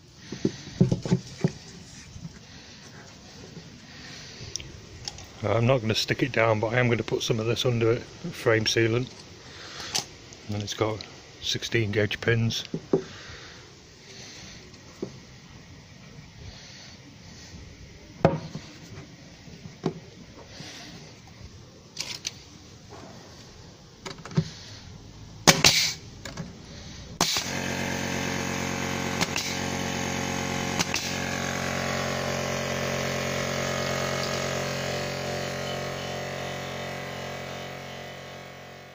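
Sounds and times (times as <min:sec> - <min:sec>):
steady multi-tone hum: 0:00.0 - 0:38.9
nail gun snaps: 0:25.4 - 0:26.4, 0:27.2 - 0:27.7, 0:29.1 - 0:29.7, 0:30.7 - 0:31.2.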